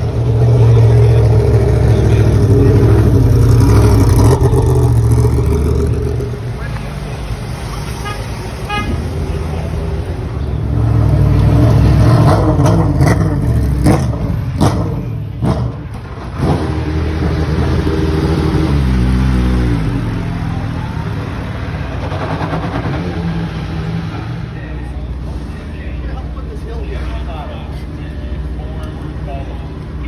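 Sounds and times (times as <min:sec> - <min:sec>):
race car engine revving: 0:00.0 - 0:07.9, 0:10.6 - 0:24.6.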